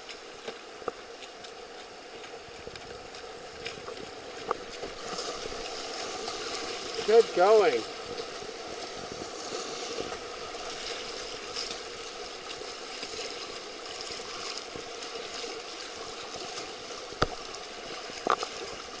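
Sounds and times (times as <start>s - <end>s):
whitewater rapids rushing: 6.2s - 8.2s.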